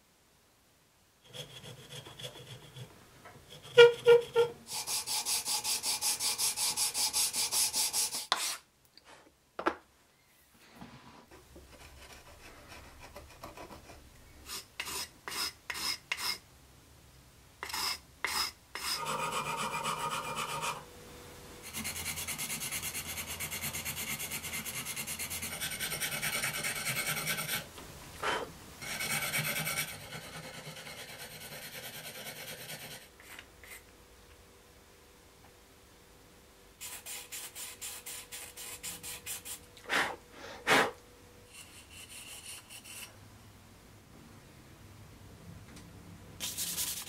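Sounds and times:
sandpaper scraping: 3.5 - 8.7, 36.8 - 39.6, 41.5 - 43.1, 46.4 - 47.0.

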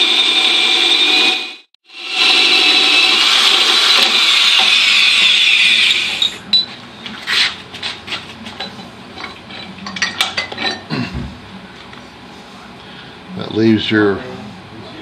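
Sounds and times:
holesaw screeching through metal tubing: 2.0 - 6.4
metal clinks and knocks: 8.5 - 10.9.

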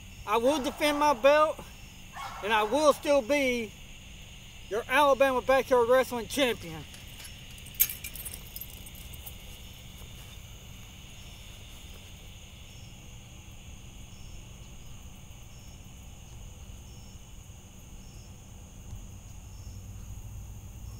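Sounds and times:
crickets chirring: 0.0 - 20.9.

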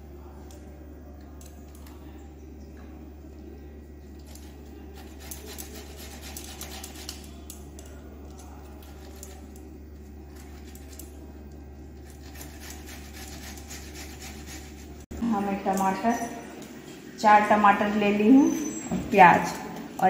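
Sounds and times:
vegetable rasping on a metal grater: 4.9 - 7.3, 12.0 - 15.0.

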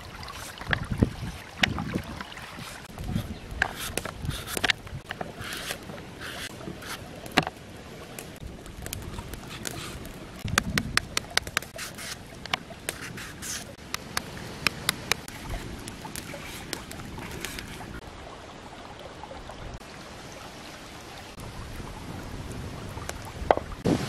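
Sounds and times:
knife scraping mango: 5.4 - 7.0.

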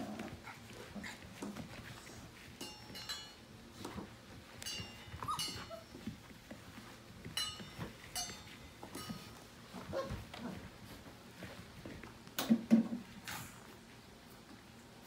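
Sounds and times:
puppies squealing and yipping: 5.2 - 6.0.

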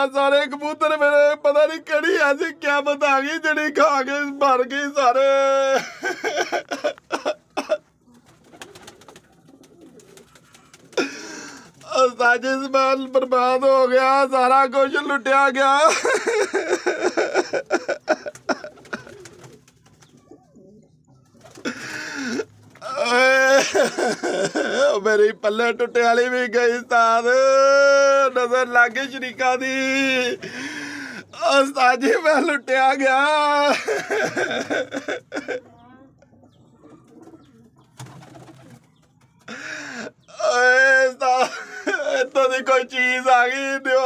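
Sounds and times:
pigeons cooing: 5.8 - 12.0, 16.1 - 23.0, 33.7 - 40.5.

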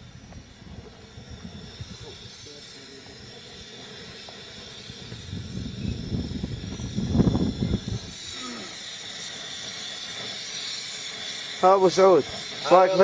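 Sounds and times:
wind buffeting microphone: 0.0 - 3.7, 4.5 - 8.3.

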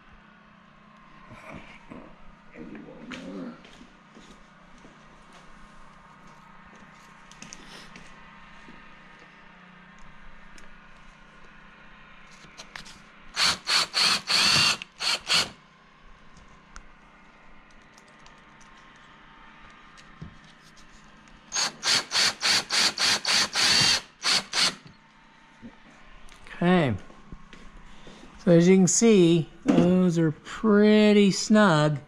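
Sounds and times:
cordless drill driving screws: 13.4 - 15.6, 21.5 - 24.9.

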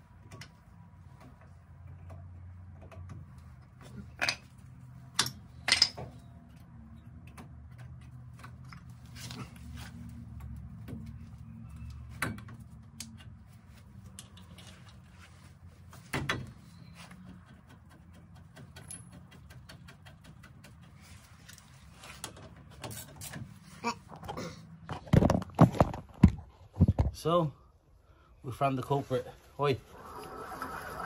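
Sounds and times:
metal parts and tools clicking: 5.1 - 6.3.

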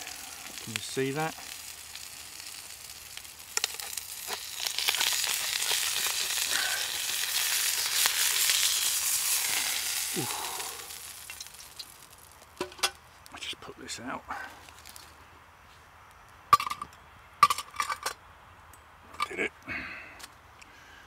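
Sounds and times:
hot fat sizzling in a frying pan: 0.0 - 13.3.

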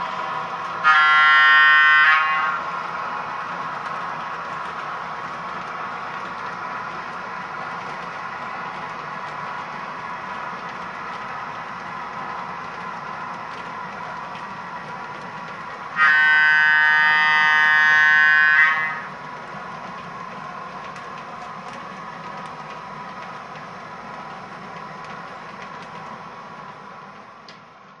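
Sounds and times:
model train cars rolling on track: 0.0 - 28.0
model locomotive horn blast: 0.8 - 2.7, 16.0 - 19.1.

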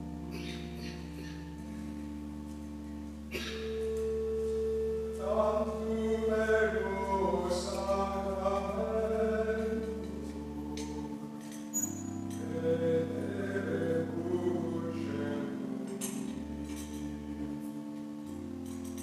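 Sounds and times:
organ holding chords: 0.0 - 19.0
people singing a hymn: 5.1 - 16.4.

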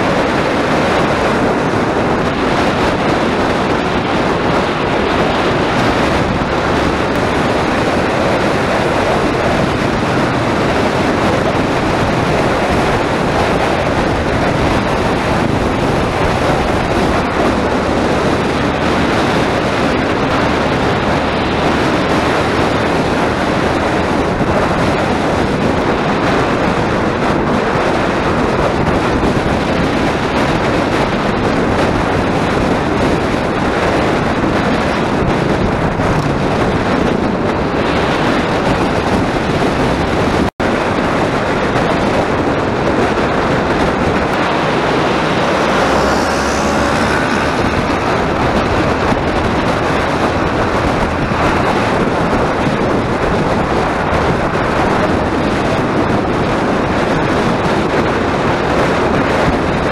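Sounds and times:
wind noise on microphone: 0.0 - 59.9
motorcycle engine running: 41.1 - 59.9.

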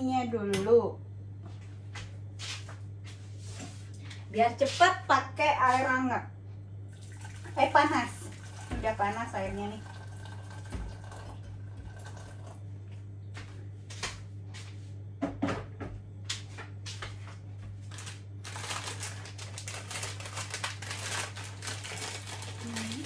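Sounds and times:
plastic packet crinkling: 17.9 - 23.0.

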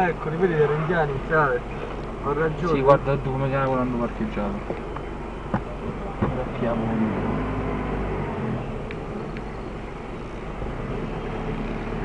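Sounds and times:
car engine running slowly: 0.0 - 12.0
tyre and road noise: 0.0 - 12.0.

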